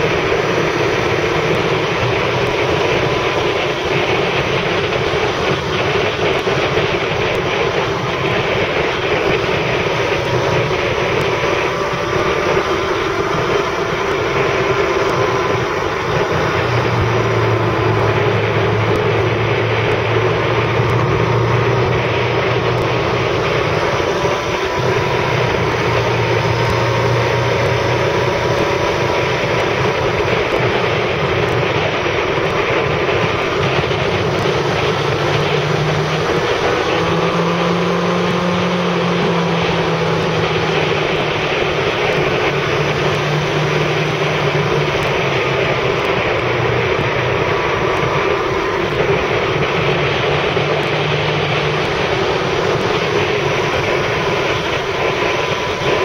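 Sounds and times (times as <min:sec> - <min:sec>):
motorcycle engine revving: 0:00.0 - 0:56.0
wind and road noise: 0:00.0 - 0:56.0.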